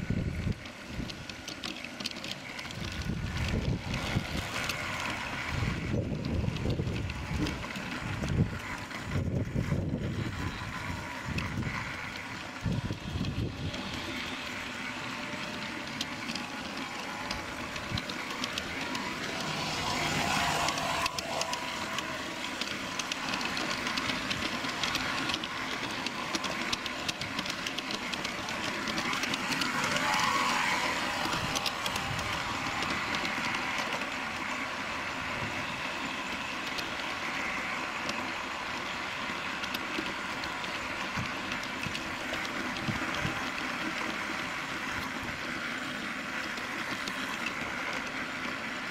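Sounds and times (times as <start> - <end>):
wheels clicking on track: 0.0 - 48.9
steam hiss: 13.7 - 48.5.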